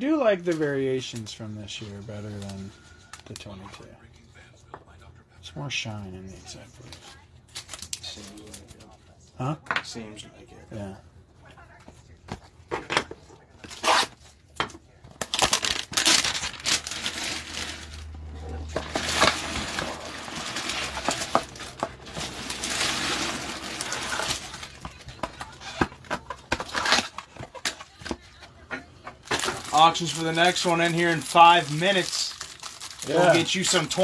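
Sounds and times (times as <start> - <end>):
packaging rustling and crinkling: 15.1 - 28.2, 29.2 - 34.0
cardboard box being torn open: 18.8 - 24.9.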